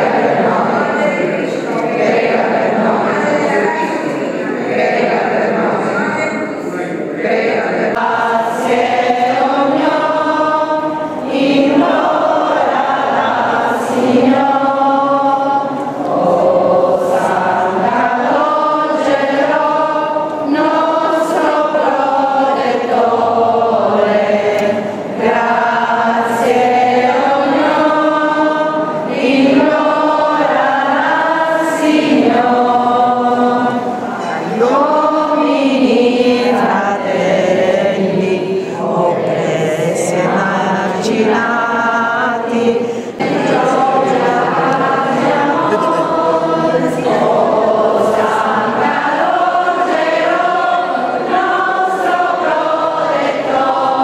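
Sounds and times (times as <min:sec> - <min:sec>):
congregation singing a hymn: 0:00.0 - 0:54.0.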